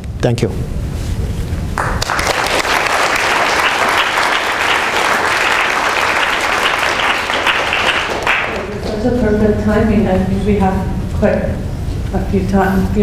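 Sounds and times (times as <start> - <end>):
audience applauding: 1.8 - 9.1.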